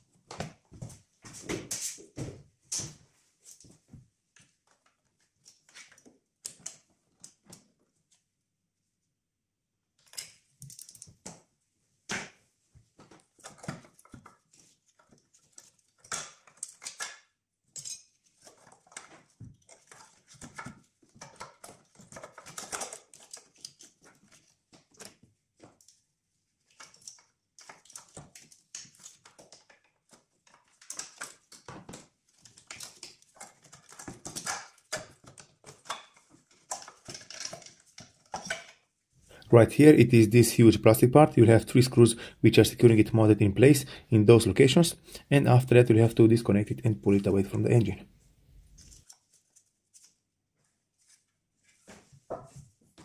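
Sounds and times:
screwdriver and plastic parts clattering: 10.0s - 11.4s, 13.2s - 26.0s, 26.6s - 38.9s.

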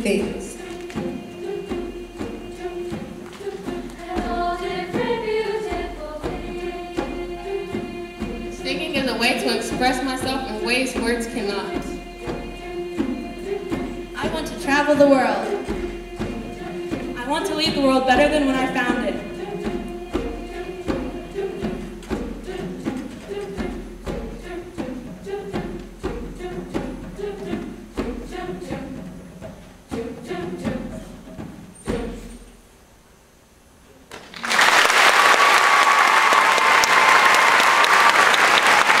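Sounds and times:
piano accompaniment: 0.0s - 22.2s
treble choir singing: 0.0s - 32.6s, 34.6s - 39.0s
audience applause: 34.1s - 39.0s.

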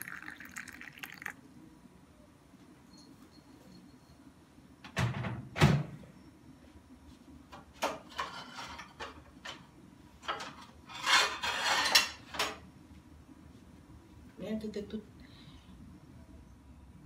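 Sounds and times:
kitchenware clicks and clatters: 7.8s - 12.6s.

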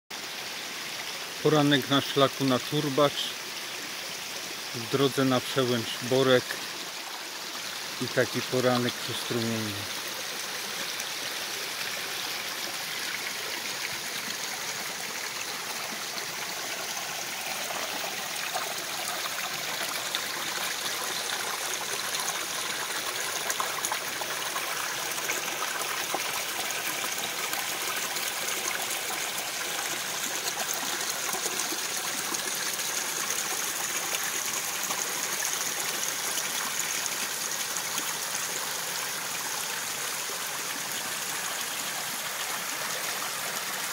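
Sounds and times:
stream flowing over stones: 0.1s - 43.9s.

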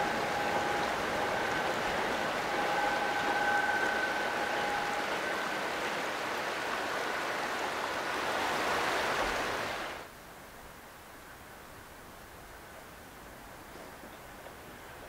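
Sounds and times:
faint whistling tones: 0.0s - 6.8s
river rushing: 0.0s - 10.1s
quiet hiss: 0.0s - 15.0s.

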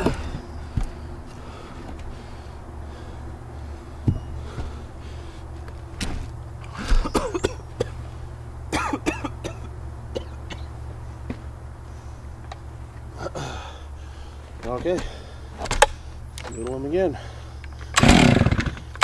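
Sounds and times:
low engine hum: 0.0s - 19.0s
man coughing: 6.8s - 8.0s, 8.7s - 10.7s.

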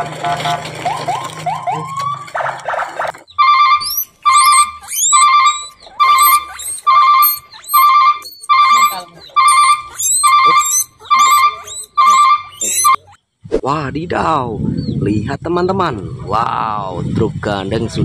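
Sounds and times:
high chirps: 3.2s - 13.3s
ringtone-like electronic trill: 3.4s - 13.1s.

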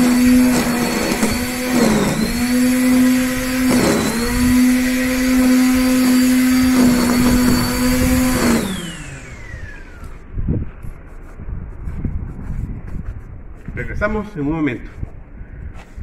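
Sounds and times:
electric string trimmer whining: 0.0s - 10.4s.

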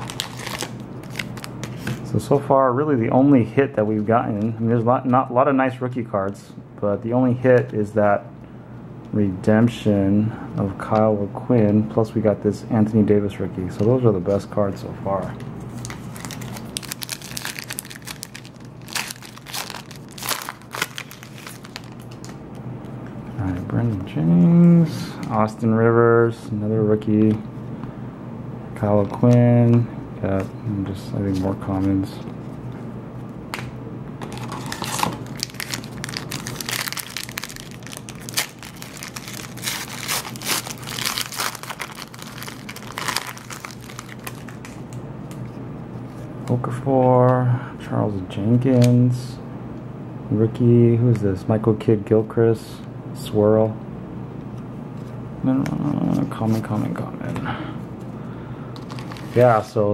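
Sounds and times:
foil wrapper crinkling: 0.0s - 1.9s, 15.7s - 22.4s, 34.3s - 44.9s, 58.8s - 59.6s.

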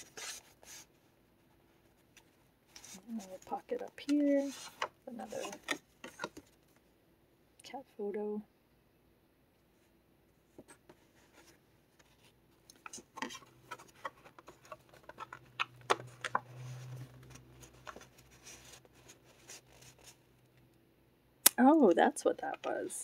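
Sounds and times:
paper rustling and scraping: 0.0s - 0.9s, 2.1s - 6.6s, 11.0s - 20.2s.

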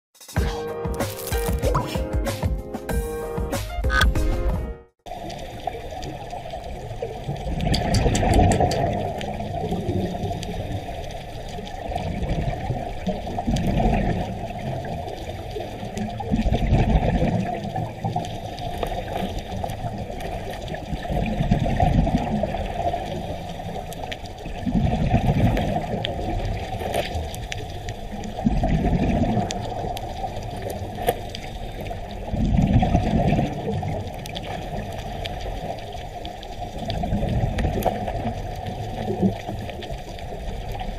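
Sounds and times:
exhaled bubbles rumbling: 5.1s - 40.9s
rush of water: 5.1s - 40.9s
scuba diver breathing: 30.7s - 32.4s.

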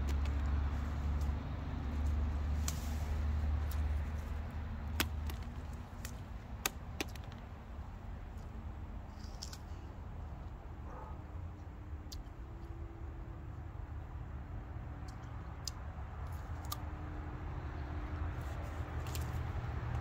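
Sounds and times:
vehicle engine rumbling: 0.0s - 20.0s
sharp clicks and snaps: 15.0s - 16.9s.

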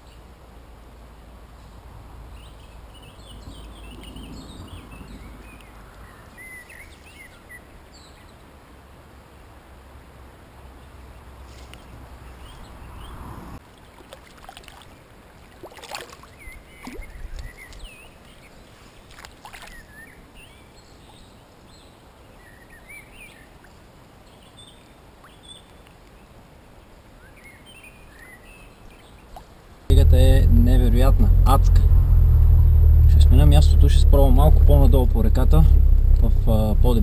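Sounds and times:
small birds chirping: 1.6s - 8.5s, 10.8s - 13.3s, 16.2s - 31.9s
water splashing: 13.6s - 17.9s, 19.0s - 19.9s.

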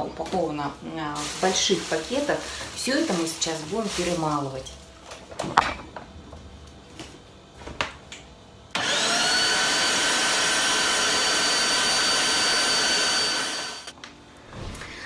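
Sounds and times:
electric meat grinder running: 8.8s - 13.9s.

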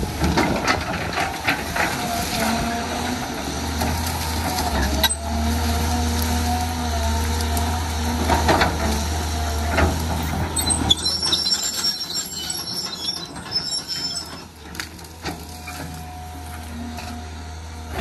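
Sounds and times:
excavator diesel engine humming: 0.0s - 18.0s
metallic squealing: 10.2s - 14.6s.

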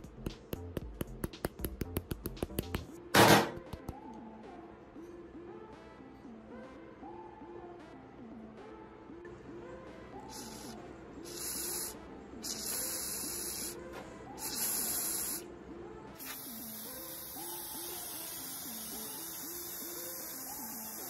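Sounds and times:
soft background music: 0.0s - 21.0s
aerosol spray can hissing: 10.3s - 13.8s, 14.4s - 15.4s, 16.2s - 21.0s.

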